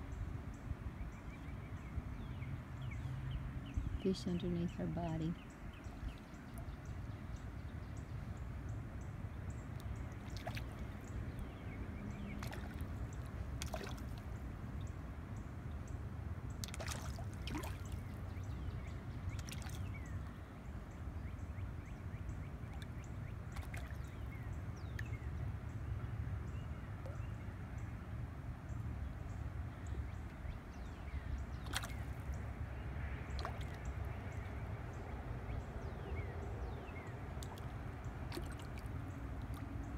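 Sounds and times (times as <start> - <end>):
water drips and plops: 9.8 - 11.2, 12.2 - 14.4, 16.6 - 18.2, 19.3 - 19.9, 23.5 - 24.1, 31.6 - 32.0, 33.3 - 34.4, 37.3 - 39.8.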